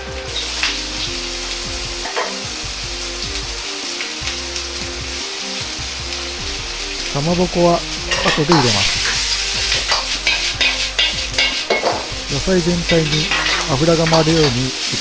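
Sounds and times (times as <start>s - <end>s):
vegetables sizzling in hot oil: 0.0s - 15.0s.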